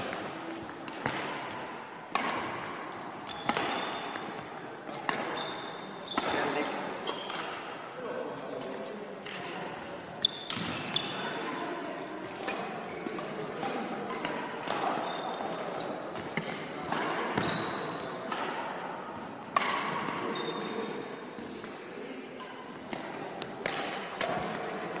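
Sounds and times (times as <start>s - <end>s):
shoes squeaking on court: 0.2s - 2.0s, 3.1s - 7.6s, 9.8s - 11.2s, 12.0s - 12.5s, 13.8s - 16.0s, 16.8s - 18.4s, 19.6s - 21.0s
racket striking shuttlecock: 0.8s - 2.8s, 3.4s - 5.4s, 22.9s - 25.0s.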